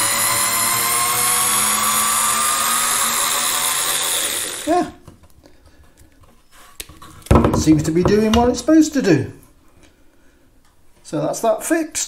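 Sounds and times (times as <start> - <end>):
cordless screwdriver motor whine: 0.0 - 4.7.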